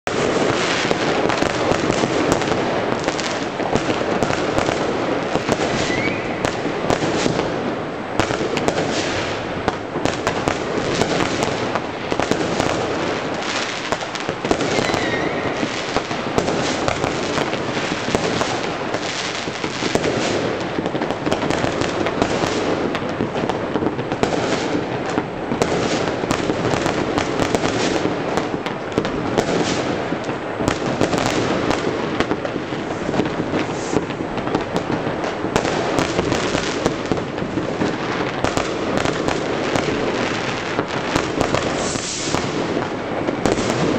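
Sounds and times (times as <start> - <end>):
fireworks bangs and crackles: 0.0 - 43.9
firework whistle: 0.1 - 7.6, 10.3 - 20.5, 32.7 - 34.3, 41.2 - 43.9.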